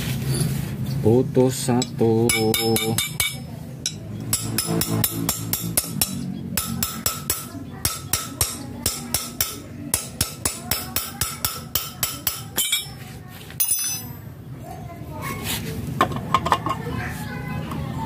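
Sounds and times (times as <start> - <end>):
hammer striking steel punch: 2.2 - 12.9.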